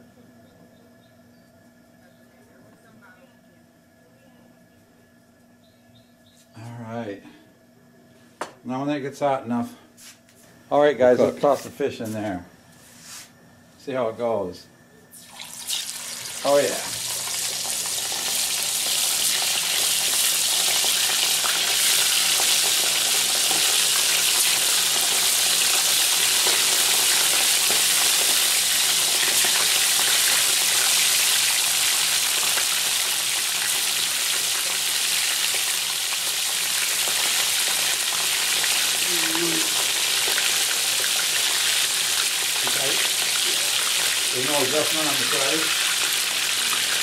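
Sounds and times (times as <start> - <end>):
fish sizzling in hot oil: 15.1 - 47.0.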